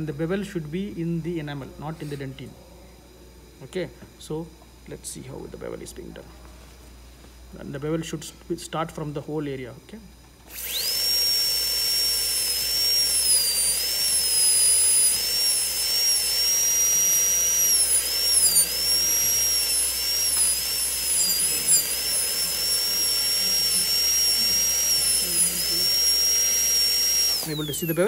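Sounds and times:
dental drill whining: 0:10.3 - 0:28.0.

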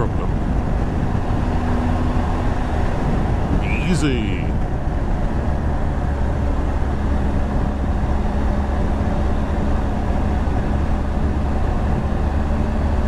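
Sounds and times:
wind rush over microphone: 0:00.3 - 0:05.9.

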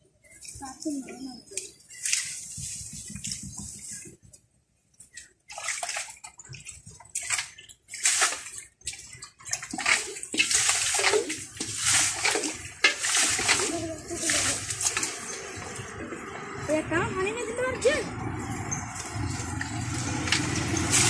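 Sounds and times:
hands splashing in muddy water: 0:05.1 - 0:16.3, 0:18.9 - 0:21.0.

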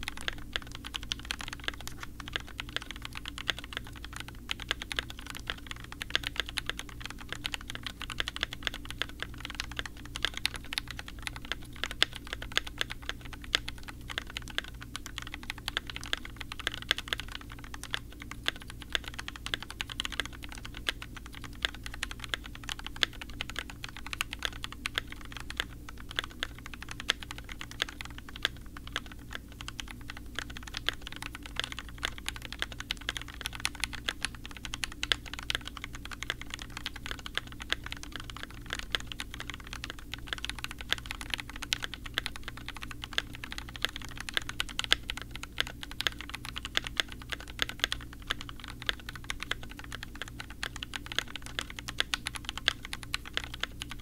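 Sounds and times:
mechanical keyboard typing: 0:00.0 - 0:54.0.

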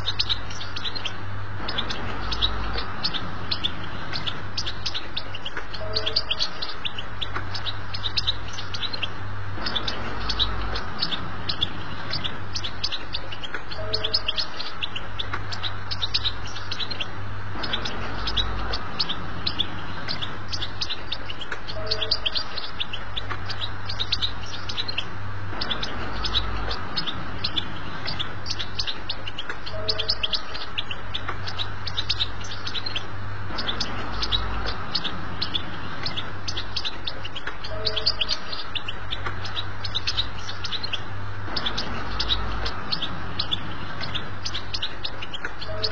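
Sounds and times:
goldfinch twittering song: 0:00.0 - 0:45.9
steady low hum: 0:00.0 - 0:45.9.

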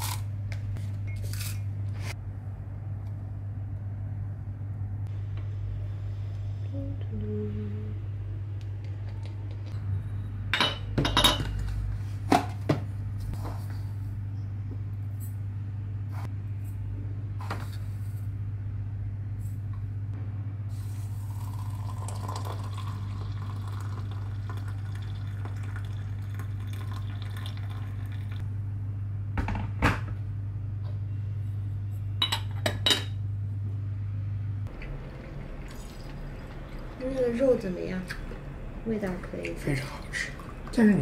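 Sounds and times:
low hum: 0:00.1 - 0:41.0
hot water pouring into teapot: 0:21.0 - 0:28.4, 0:34.7 - 0:37.4.

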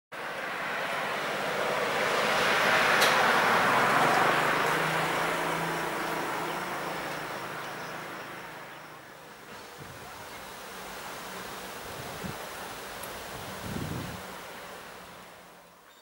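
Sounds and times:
vehicle passing by: 0:00.2 - 0:09.2.

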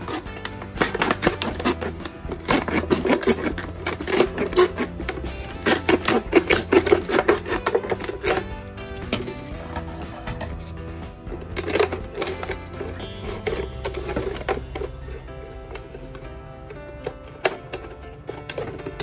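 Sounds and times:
knife blade sawing plastic bottle: 0:00.0 - 0:08.6, 0:11.4 - 0:15.2
background music: 0:00.0 - 0:19.0.

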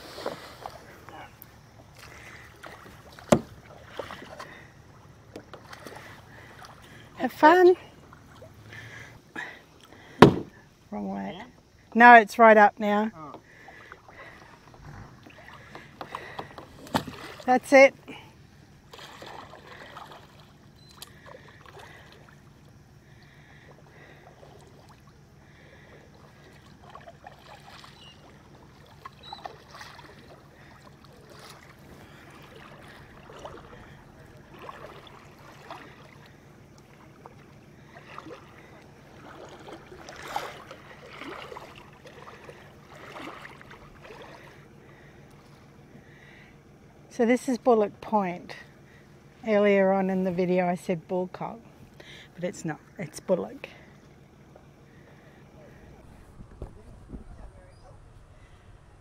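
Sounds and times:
small water splashes: 0:00.0 - 0:10.6, 0:13.3 - 0:46.4
steady low hum: 0:00.0 - 0:59.0.

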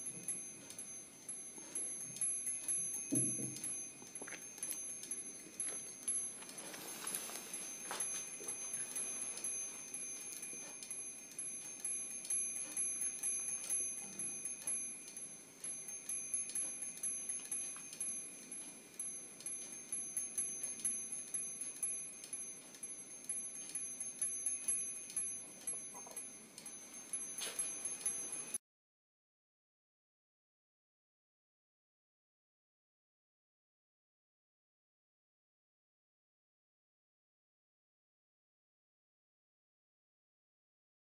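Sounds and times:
high ringing tones: 0:00.0 - 0:28.6
small bells tinkling: 0:00.0 - 0:28.6.

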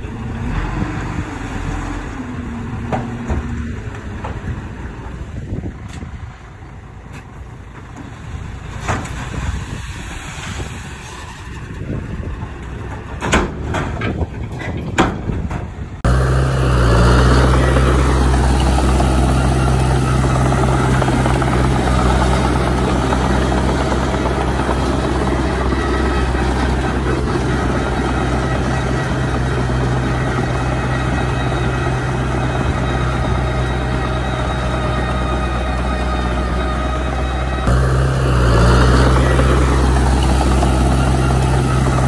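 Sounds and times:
bulldozer diesel engine droning: 0:00.0 - 0:42.0
rocks tumbling from dump truck: 0:07.1 - 0:16.1.

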